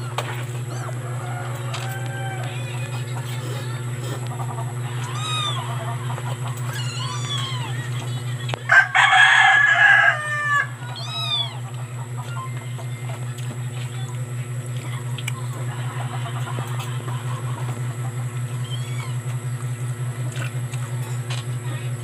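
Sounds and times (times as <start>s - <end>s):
chicken calls: 0.0s - 13.4s, 15.3s - 20.0s
steady low hum: 0.0s - 22.0s
rooster crowing: 0.7s - 3.1s, 4.4s - 8.0s, 8.6s - 12.6s.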